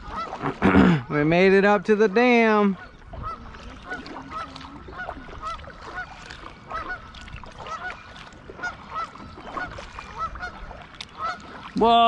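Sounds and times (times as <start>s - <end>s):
geese honking: 0.0s - 0.5s, 1.9s - 11.7s.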